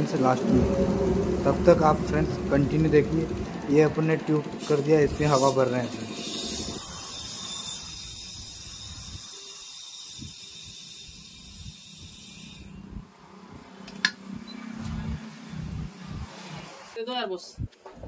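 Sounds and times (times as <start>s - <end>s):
compressed air hissing: 4.6s - 13.0s.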